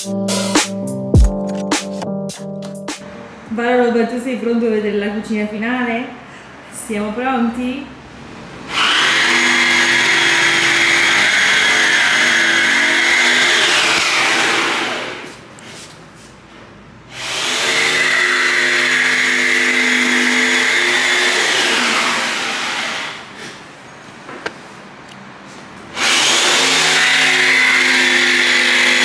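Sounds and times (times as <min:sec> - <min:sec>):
electric motor whining: 0:08.7 - 0:15.3.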